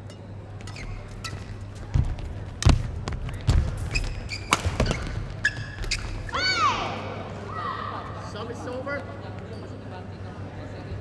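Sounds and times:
shoes squeaking on court: 0.5 - 6.4
racket hitting shuttlecock: 3.5 - 5.2.

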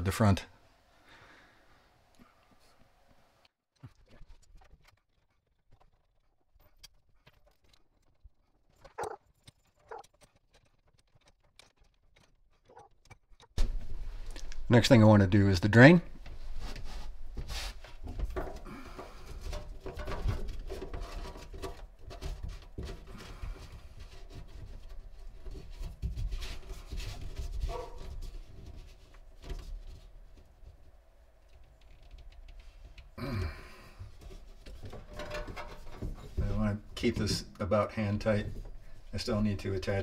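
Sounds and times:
plastic pipe fittings clicking and scraping: 3.8 - 13.6, 17.9 - 27.6, 28.4 - 33.2, 34.1 - 37.4.

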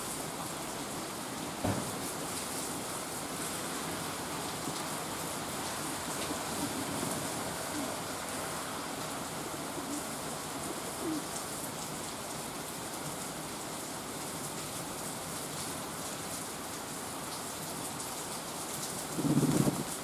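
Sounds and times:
rain on leaves and pavement: 0.0 - 20.0
pigeon cooing: 6.2 - 8.6, 9.3 - 11.4, 19.1 - 20.0.

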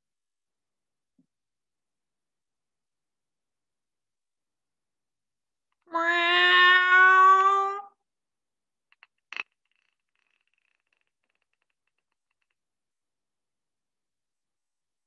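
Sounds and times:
toy cat meowing: 5.9 - 7.9.

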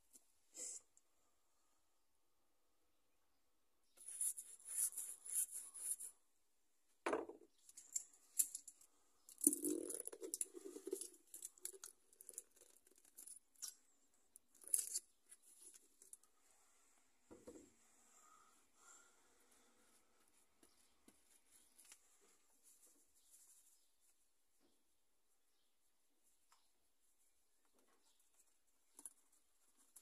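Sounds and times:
knock on workbench: 7.1 - 7.4.

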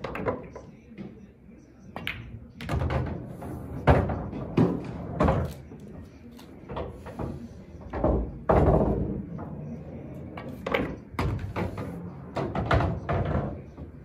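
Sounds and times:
ball rolling inside table: 2.7 - 5.9, 6.6 - 14.0.

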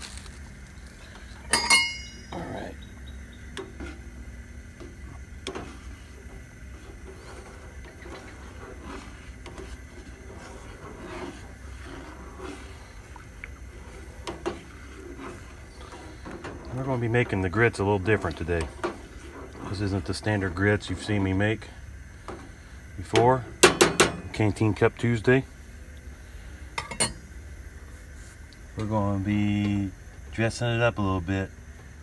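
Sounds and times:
utensil clinking on steel pot: 1.5 - 2.6, 26.8 - 27.2
stirring grits in pot: 2.2 - 25.3.

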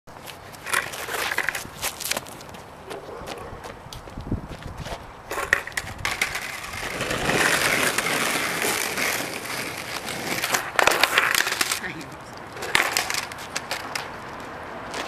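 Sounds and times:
skateboard wheels rolling on asphalt: 0.1 - 15.0
sharp skateboard clack: 5.3 - 15.0.

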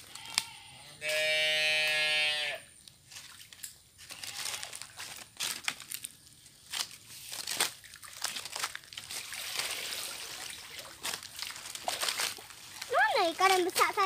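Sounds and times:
squelches and splashes: 2.9 - 14.0
leaf litter crackling: 3.1 - 14.0
mud sloshed with plastic crate: 6.7 - 14.0.

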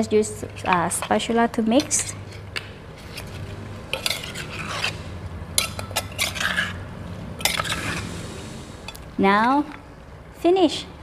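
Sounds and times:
spoon scraping in clay mortar: 3.0 - 6.8, 7.4 - 8.2.

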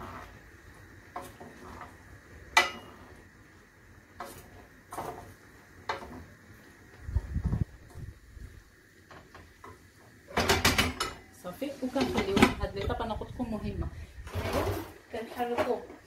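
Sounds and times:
spatula scraping metal pan: 0.0 - 0.4, 1.2 - 2.0.

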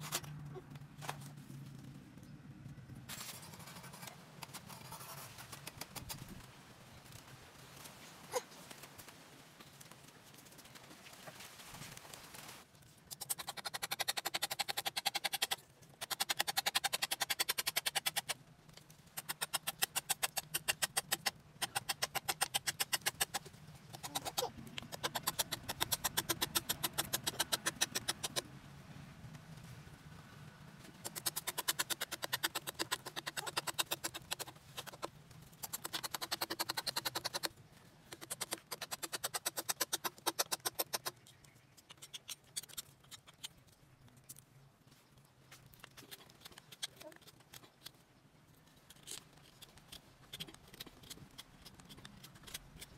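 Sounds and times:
knife scraping wood: 3.1 - 6.2, 19.2 - 28.4, 31.0 - 37.5, 48.8 - 52.9.

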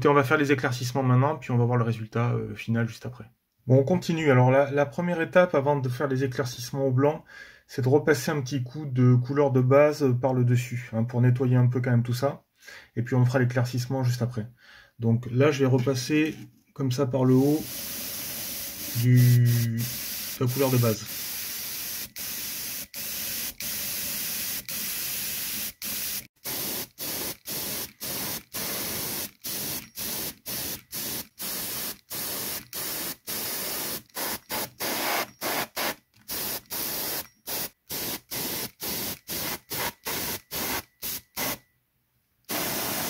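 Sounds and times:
airbrush hissing: 17.4 - 41.6, 42.5 - 43.0.

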